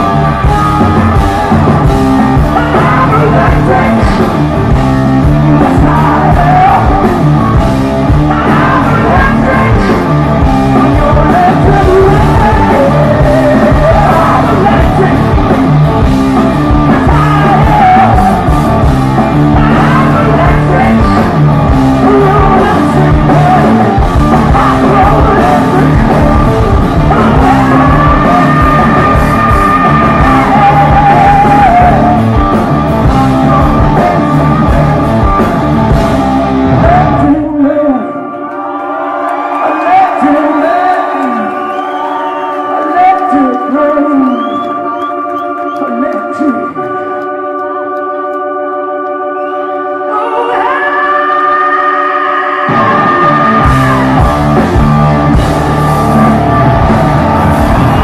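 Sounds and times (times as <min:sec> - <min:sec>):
drums: 0:00.0 - 0:48.4, 0:49.4 - 0:58.0
electric guitar: 0:00.0 - 0:58.0
man singing lead vocal: 0:02.2 - 0:35.4, 0:36.6 - 0:38.3, 0:39.6 - 0:45.0, 0:50.0 - 0:54.6.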